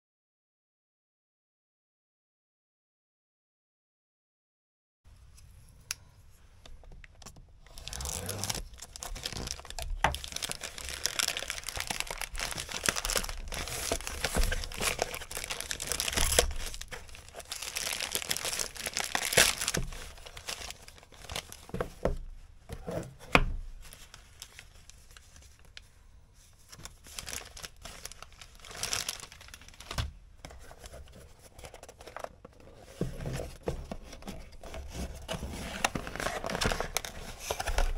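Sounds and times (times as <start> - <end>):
plastic bag tearing and crinkling: 7.7 - 21.8, 26.8 - 30.0, 35.5 - 37.9.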